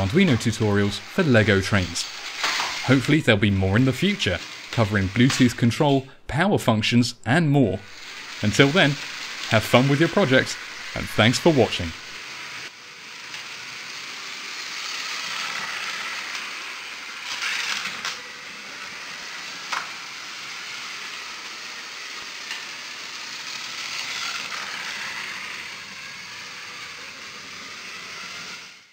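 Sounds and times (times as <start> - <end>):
toy train wheels and motors whirring: 0.0 - 28.9.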